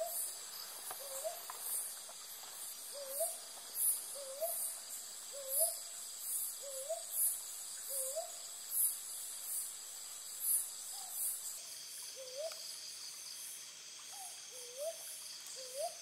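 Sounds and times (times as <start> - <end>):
insects pulsing calls: 0.0 - 16.0
owl hooting: 5.3 - 5.8.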